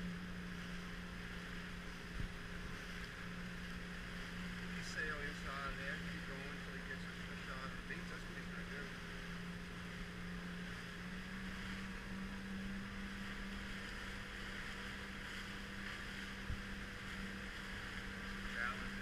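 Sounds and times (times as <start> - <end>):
motorboat engine running: 0.0 - 19.0
wind and water rushing: 0.0 - 19.0.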